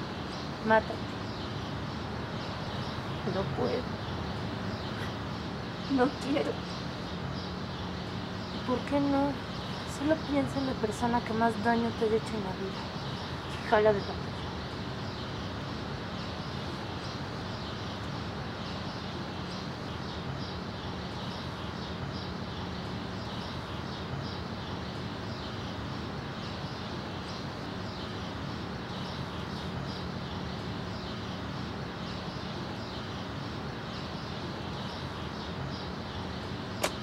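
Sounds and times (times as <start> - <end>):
constant low hum: 0.0 - 37.0.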